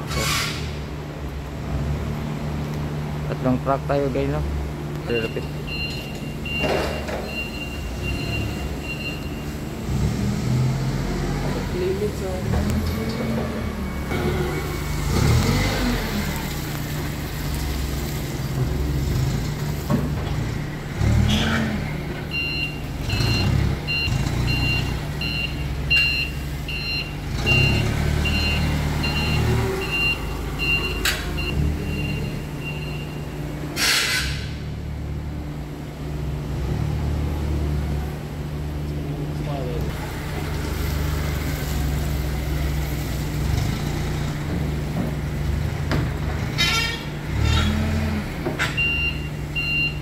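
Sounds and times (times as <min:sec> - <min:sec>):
forklift engine running: 0:00.0 - 0:50.0
reversing beeper: 0:05.1 - 0:09.7, 0:22.3 - 0:33.4
hiss of air: 0:33.8 - 0:34.6.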